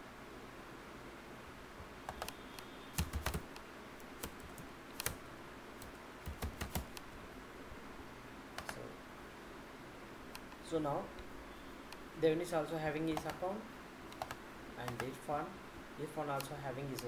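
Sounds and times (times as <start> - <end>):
keyboard typing clicks: 2.1 - 5.2, 5.8 - 7.0, 13.1 - 13.4, 14.1 - 15.2.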